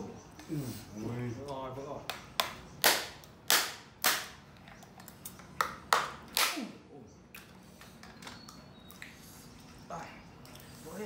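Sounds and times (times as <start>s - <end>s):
sharp cracks: 2.1s - 4.4s.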